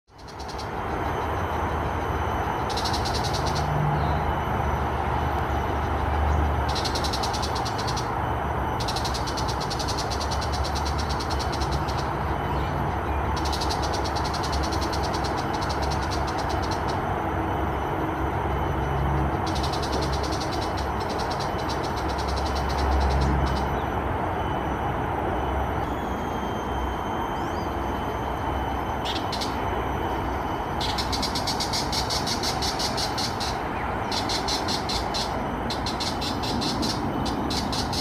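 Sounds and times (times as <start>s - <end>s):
bird chattering call: 0.1s - 0.8s, 2.6s - 4.2s, 6.6s - 8.1s, 8.8s - 17.0s, 19.4s - 23.8s, 28.9s - 30.2s, 30.8s - 38.0s.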